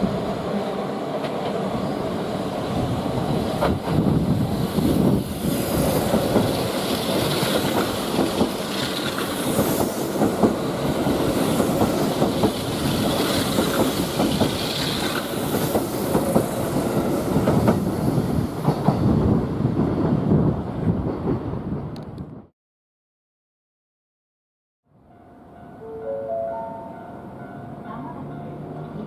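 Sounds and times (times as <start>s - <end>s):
train rolling rumble: 0.0s - 22.5s
train wheels clicking over rail joints: 3.6s - 19.3s.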